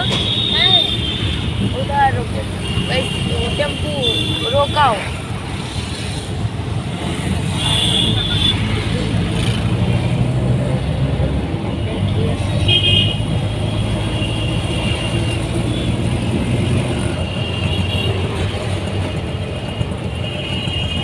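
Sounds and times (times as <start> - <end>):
vehicle horns honking: 0.0 - 5.1, 7.4 - 8.8, 12.0 - 18.6, 19.7 - 21.0
auto-rickshaw engine running: 0.0 - 21.0.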